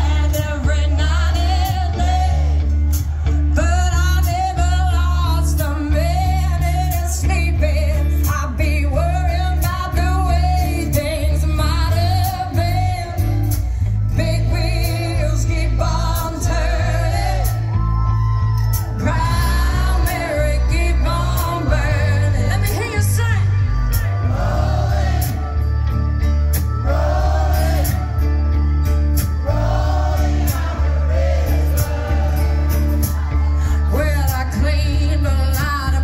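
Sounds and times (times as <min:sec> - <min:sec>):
woman singing: 0:00.0 - 0:02.6, 0:03.5 - 0:17.8, 0:18.8 - 0:23.5, 0:33.8 - 0:36.0
bass guitar: 0:00.0 - 0:36.0
drums: 0:00.0 - 0:36.0
electric guitars: 0:00.0 - 0:36.0.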